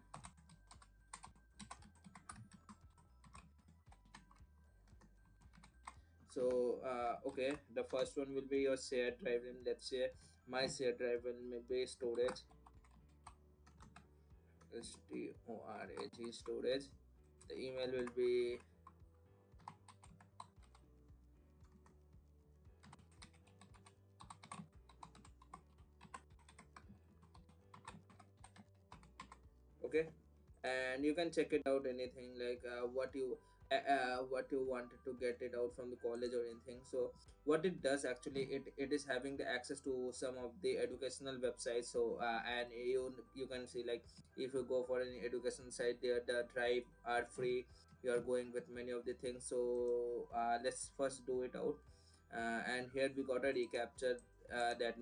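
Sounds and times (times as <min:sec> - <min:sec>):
faint keyboard typing: 0:00.0 - 0:09.9, 0:10.6 - 0:30.2.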